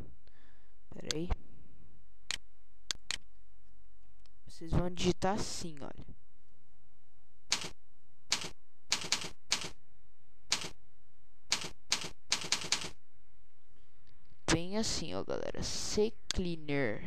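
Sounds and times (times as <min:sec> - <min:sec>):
computer keyboard typing: 0:07.5 - 0:07.7, 0:08.3 - 0:09.7, 0:10.5 - 0:10.7, 0:11.5 - 0:13.0.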